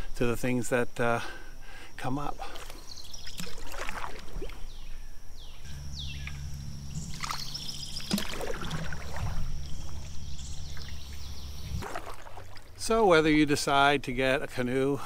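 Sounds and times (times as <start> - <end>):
steady low hum: 0.0 - 15.0
canoe paddle splashing: 2.4 - 4.8, 6.2 - 13.2.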